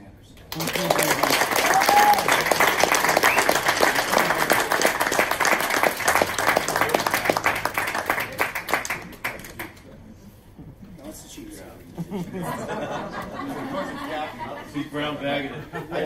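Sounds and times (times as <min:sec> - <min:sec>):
audience applauding: 0:00.5 - 0:09.8.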